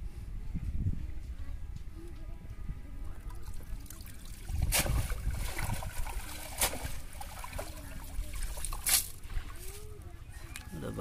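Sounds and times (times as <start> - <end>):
water splashing and sloshing: 3.1 - 10.0.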